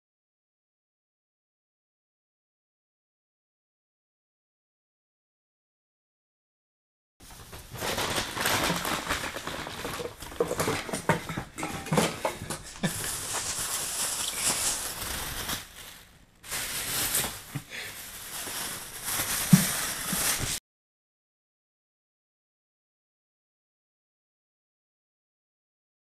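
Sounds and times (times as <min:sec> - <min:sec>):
plastic bag crinkling: 0:07.2 - 0:20.6.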